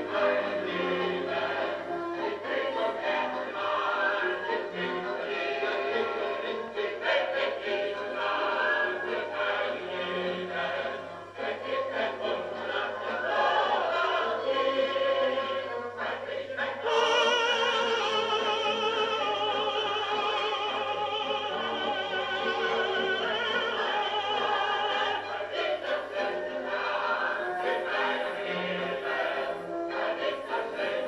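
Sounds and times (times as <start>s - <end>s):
chorus singing: 0.0s - 31.0s.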